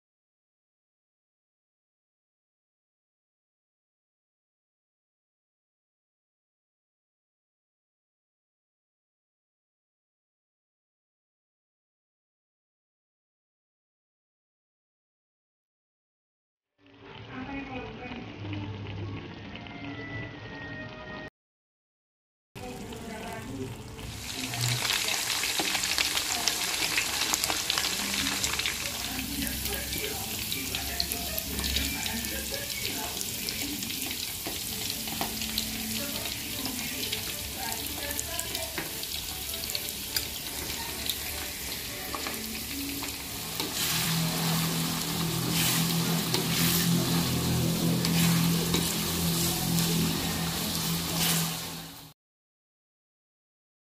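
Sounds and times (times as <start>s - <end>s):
oil sizzling in a wok: 22.6s - 52.2s.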